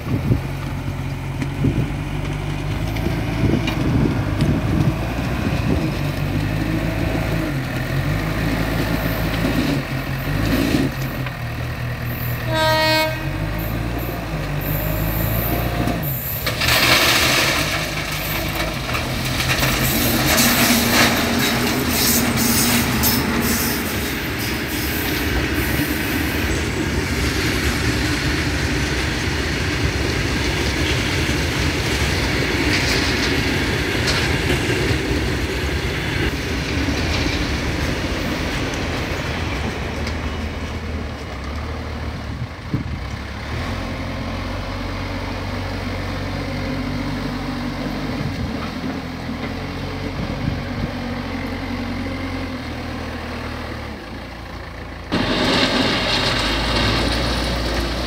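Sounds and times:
diesel engines running: 0:00.0 - 0:58.0
horn blast: 0:12.4 - 0:13.8
stones pouring into steel trolley: 0:16.0 - 0:23.9, 0:55.1 - 0:58.0.

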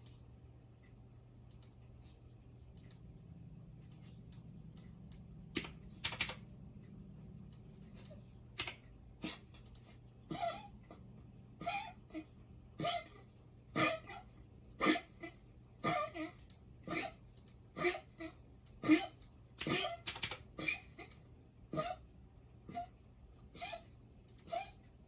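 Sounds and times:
computer mouse and keyboard clicks: 0:01.5 - 0:02.0, 0:02.7 - 0:03.2, 0:03.8 - 0:10.0, 0:16.4 - 0:16.6, 0:17.3 - 0:17.6, 0:18.6 - 0:21.3, 0:24.2 - 0:24.8.

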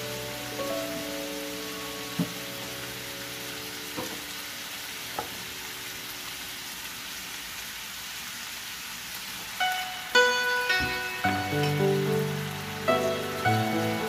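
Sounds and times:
background music: 0:00.0 - 0:05.8, 0:09.6 - 0:14.0
meat sizzling in frying pan: 0:00.0 - 0:14.0.

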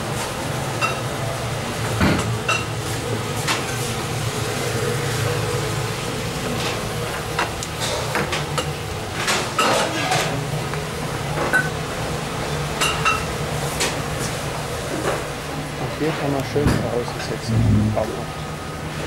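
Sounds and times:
steady low hum: 0:17.4 - 0:18.9.

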